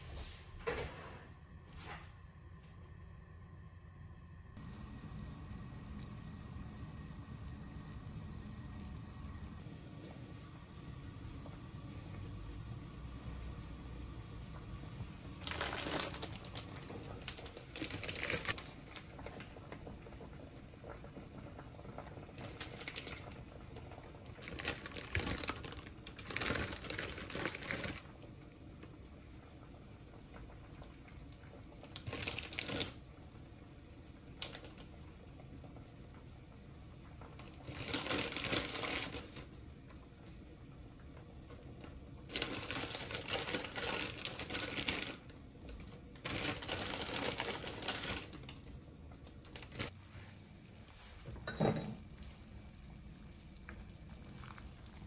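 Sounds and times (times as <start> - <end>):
plastic packet crinkling: 15.4 - 18.6, 24.4 - 28.0, 32.0 - 33.0, 37.6 - 39.4, 42.3 - 48.6, 49.4 - 50.0.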